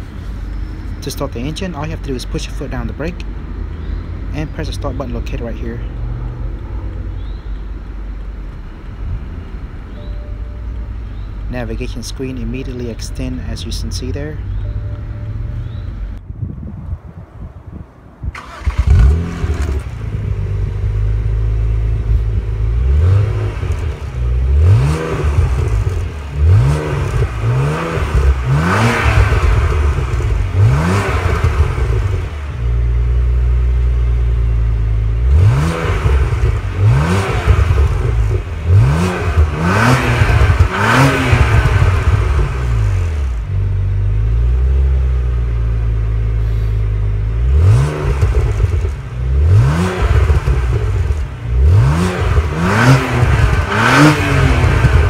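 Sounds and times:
car engine idling and revving: 0.0s - 16.3s, 18.0s - 55.0s.

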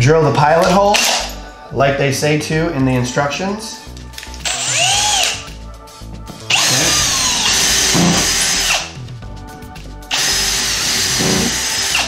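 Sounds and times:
cordless drill whining: 0.9s - 1.4s, 4.2s - 5.5s, 6.5s - 9.0s, 10.1s - 12.0s.

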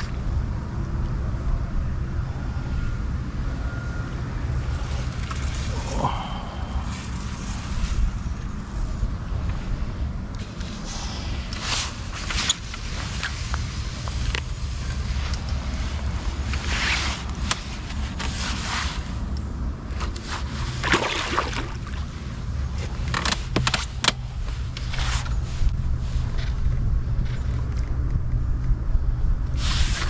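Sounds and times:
steady low rumble: 0.0s - 30.0s
net splashing and scraping in water: 4.6s - 6.4s, 20.1s - 22.4s.

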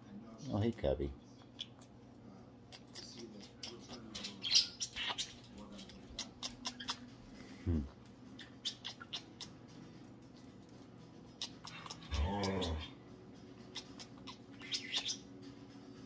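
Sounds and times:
parrot squawk: 2.8s - 5.4s, 6.2s - 7.1s, 8.3s - 9.6s, 11.3s - 13.0s, 13.6s - 15.3s.

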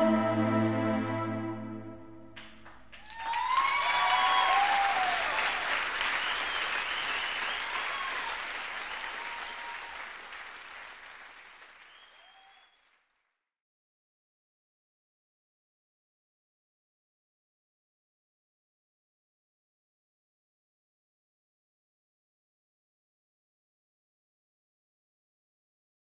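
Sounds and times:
audience cheering: 2.4s - 12.9s
audience applause: 2.4s - 13.1s.

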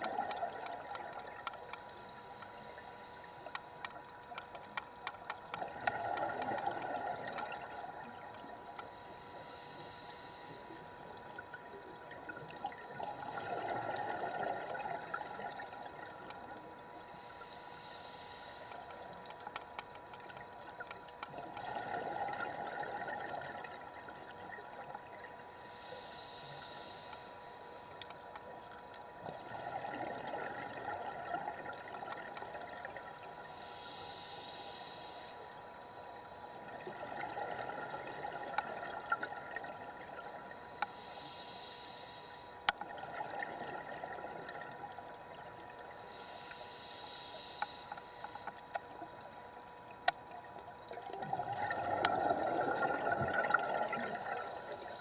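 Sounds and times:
faint steady hum: 0.0s - 55.0s
regulator inhale hiss: 0.4s - 11.8s, 12.4s - 24.4s, 25.0s - 28.6s, 29.3s - 50.4s, 51.2s - 55.0s
exhaled bubbles: 50.8s - 54.8s.

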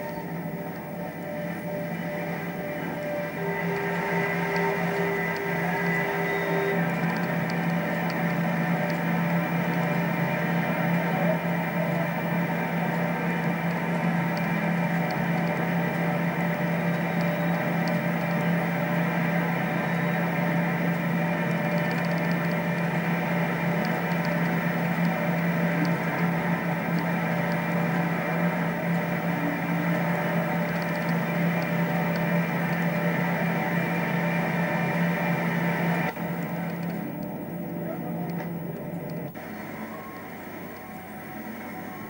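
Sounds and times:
mechanical drone with low hum: 0.0s - 42.0s.

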